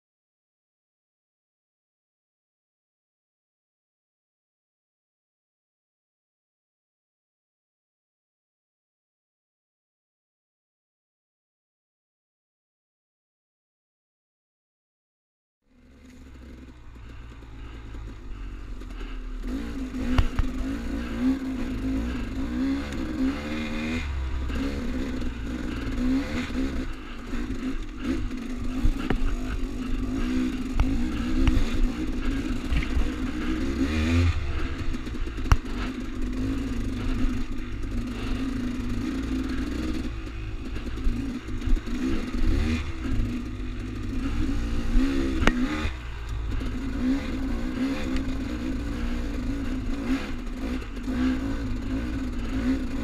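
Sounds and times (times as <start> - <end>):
dirt bike engine revving: 15.7 - 53.0.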